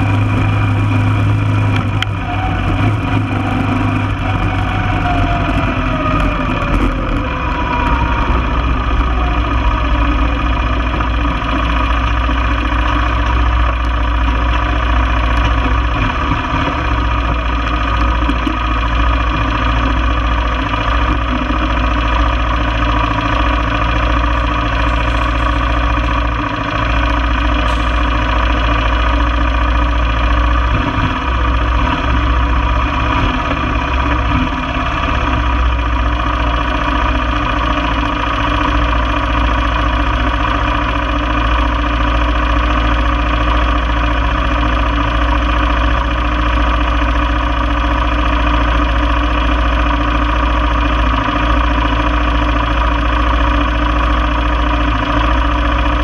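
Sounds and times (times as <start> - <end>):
quad bike engine running: 0.0 - 56.0.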